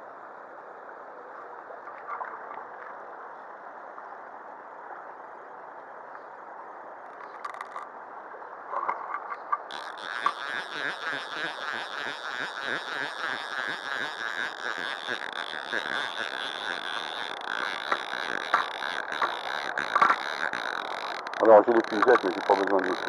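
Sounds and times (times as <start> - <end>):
rapid pulsing rustle: 9.7 - 23.0.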